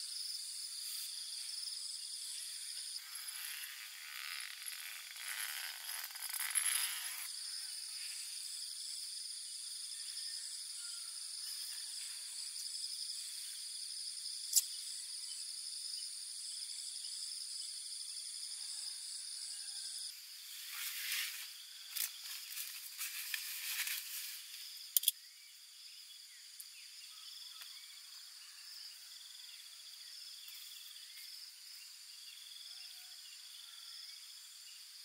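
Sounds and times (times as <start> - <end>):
crickets trilling: 0.0 - 35.0
tent fabric rustling: 20.6 - 21.5, 22.1 - 24.6.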